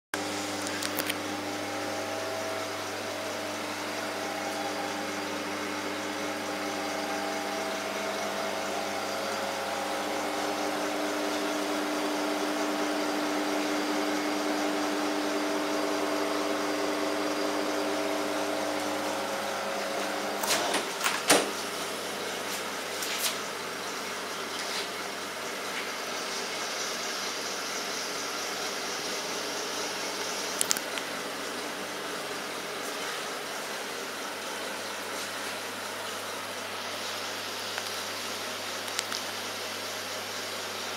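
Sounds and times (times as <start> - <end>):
refrigerator humming: 0.2 - 40.9
refrigerator doors clunking: 20.4 - 21.6.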